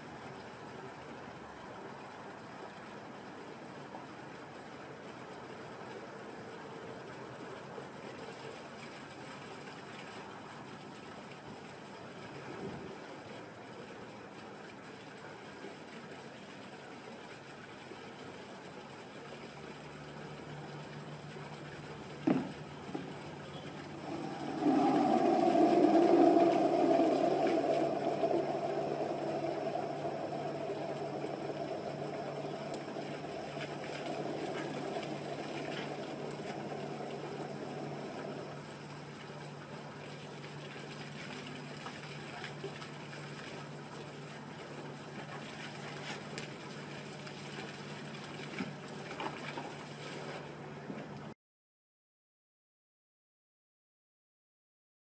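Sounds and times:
fountain pump humming: 0:00.0 - 0:50.6
water splashing into a tub: 0:22.1 - 0:38.5
rushing sound: 0:23.8 - 0:38.6.

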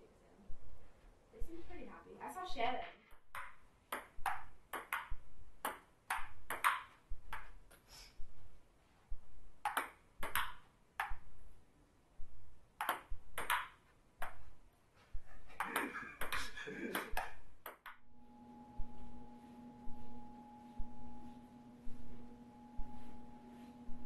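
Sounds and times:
table tennis ball clicking: 0:03.3 - 0:07.5, 0:09.6 - 0:11.2, 0:12.8 - 0:14.4, 0:17.0 - 0:18.0.

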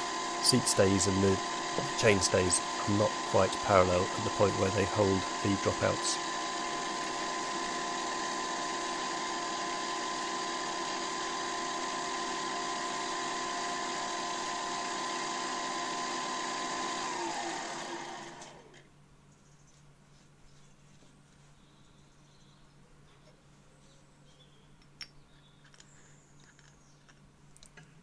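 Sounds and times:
milling machine spindle whine: 0:00.0 - 0:18.8.

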